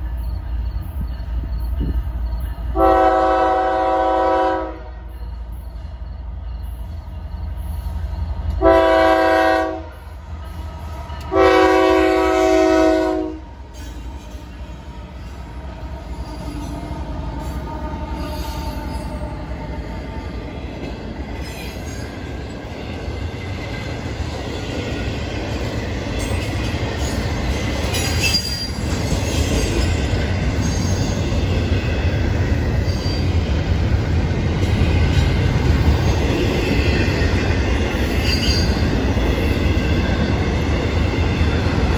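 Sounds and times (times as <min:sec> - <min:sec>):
train passing with wheel rumble: 0:00.0 - 0:41.9
train horn blasts: 0:02.7 - 0:05.2, 0:08.5 - 0:10.1, 0:11.2 - 0:15.4.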